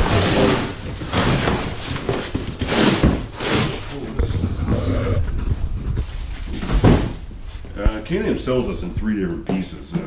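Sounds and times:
cardboard and plastic rustling: 0:00.0 - 0:08.0
low rumble: 0:03.9 - 0:07.5.

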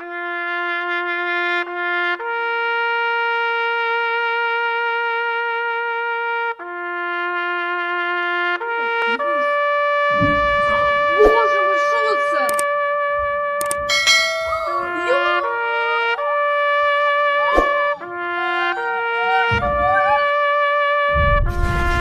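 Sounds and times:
horn-like held notes: 0:01.9 - 0:22.0
low rumble: 0:10.1 - 0:14.9, 0:21.0 - 0:22.0.

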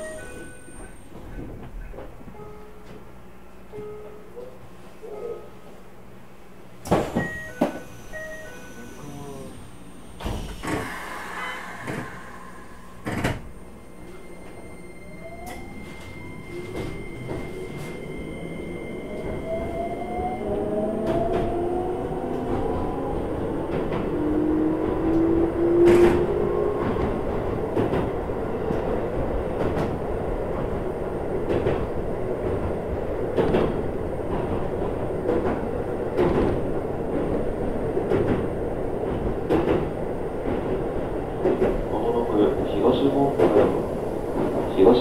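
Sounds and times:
train traction motor whine: 0:06.8 - 0:27.2.

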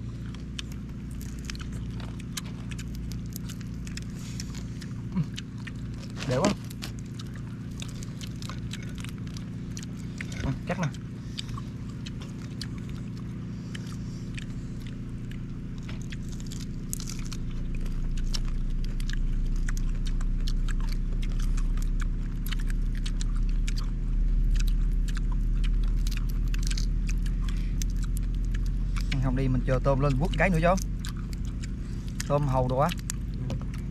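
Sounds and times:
steady low hum: 0:00.0 - 0:33.9
shrimp shells crunching: 0:00.2 - 0:13.9, 0:15.0 - 0:23.8.

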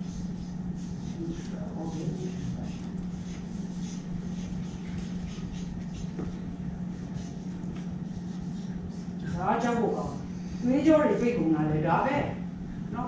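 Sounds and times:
marker strokes on paper: 0:00.0 - 0:10.1
steady low hum: 0:00.0 - 0:13.0.

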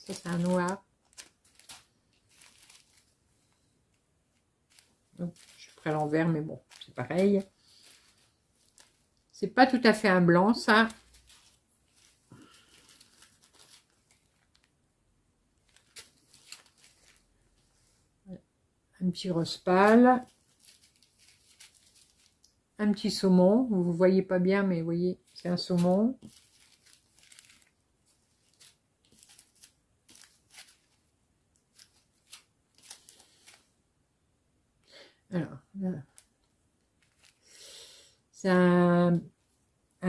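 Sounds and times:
plastic bags rustling: 0:00.0 - 0:03.7, 0:04.6 - 0:14.7, 0:15.5 - 0:17.9, 0:19.5 - 0:22.6, 0:25.2 - 0:33.7, 0:37.0 - 0:37.6.

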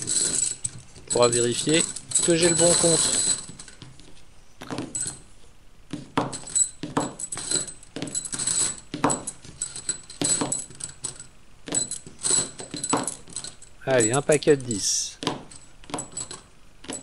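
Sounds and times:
steel nails clinking on table: 0:00.0 - 0:03.8, 0:06.2 - 0:17.0.

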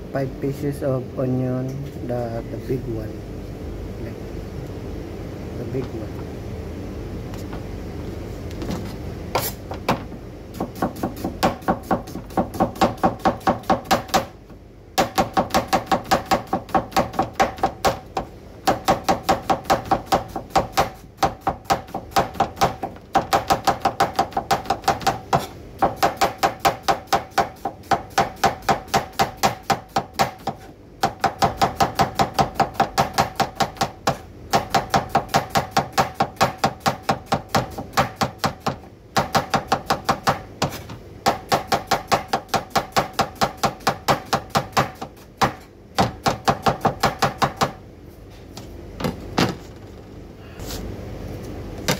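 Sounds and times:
cleaver chopping on wooden board: 0:18.7 - 0:47.8.

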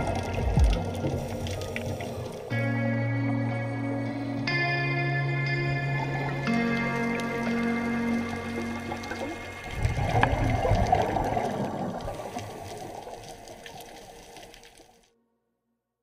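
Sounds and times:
underwater air bubbling: 0:00.0 - 0:04.6, 0:05.4 - 0:15.0.

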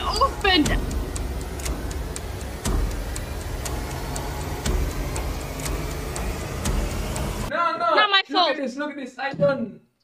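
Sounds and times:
clock ticking: 0:00.0 - 0:07.5.

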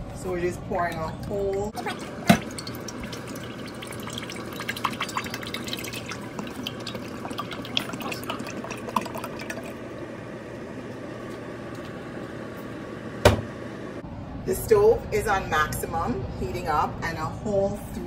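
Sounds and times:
oil pouring and splashing into pot: 0:02.1 - 0:09.9.

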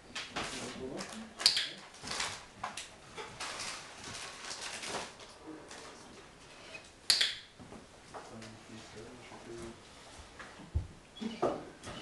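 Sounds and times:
sharp click: 0:01.4 - 0:01.8, 0:07.1 - 0:07.5.

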